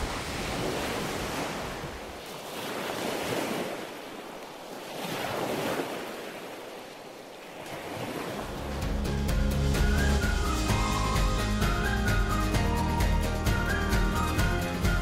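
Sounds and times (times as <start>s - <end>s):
sea waves washing on sand: 0.0s - 9.0s.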